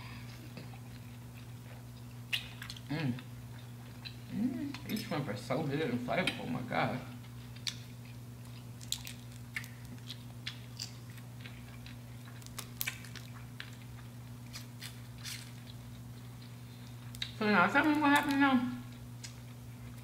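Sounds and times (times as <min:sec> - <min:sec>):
steady low hum: 0:00.0 - 0:20.0
chewing and biting food: 0:00.3 - 0:05.1, 0:07.2 - 0:17.4.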